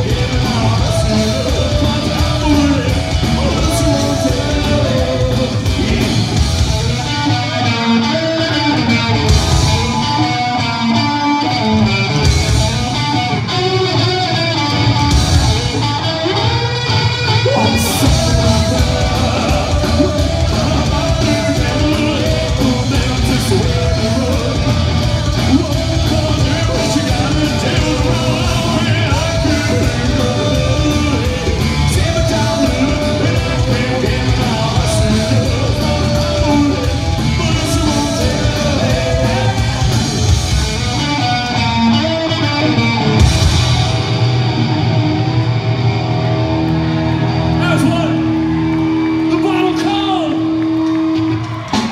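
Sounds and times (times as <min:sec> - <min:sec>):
sung vocals: 0:00.0 - 0:10.8, 0:17.0 - 0:41.8
band playing loudly: 0:00.0 - 0:51.9.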